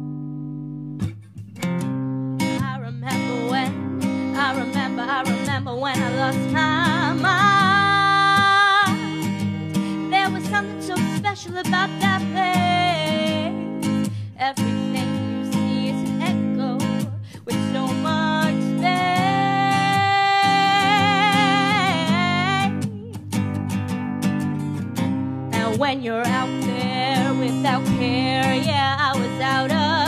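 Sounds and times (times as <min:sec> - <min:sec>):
woman singing slow melody: 0:02.5 - 0:23.4, 0:25.5 - 0:30.0.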